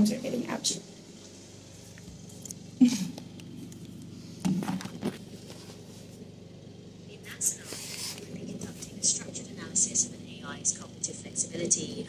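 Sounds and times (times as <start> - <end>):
knocks and rustles: 4.4 - 6.1.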